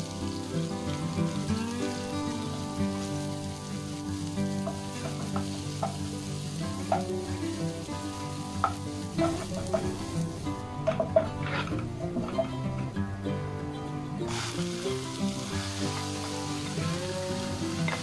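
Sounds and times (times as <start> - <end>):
shallots sizzling in oil: 0.0 - 18.0
spatula scraping a pan: 10.9 - 12.4.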